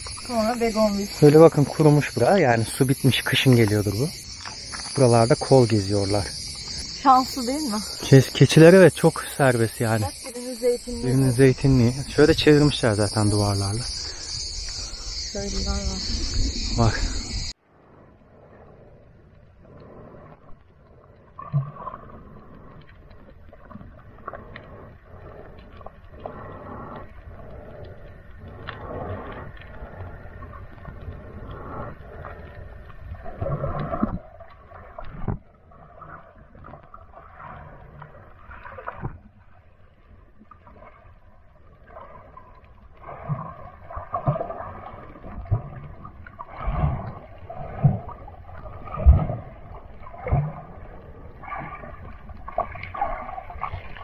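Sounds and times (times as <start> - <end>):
underwater sloshing and gurgling: 0.0 - 54.0.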